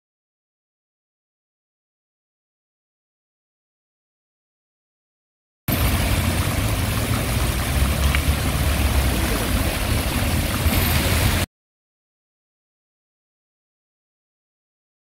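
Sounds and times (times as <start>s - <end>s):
fountain water splashing into pool: 5.7s - 11.5s.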